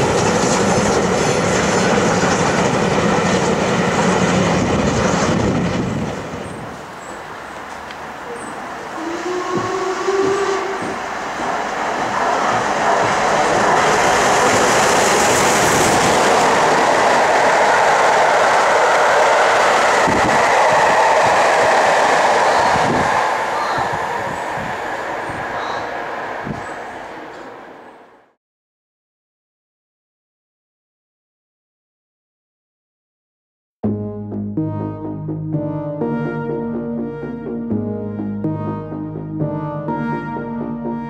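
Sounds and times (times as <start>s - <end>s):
steam locomotive passing: 0.0s - 28.4s
steam whistle: 8.8s - 11.2s.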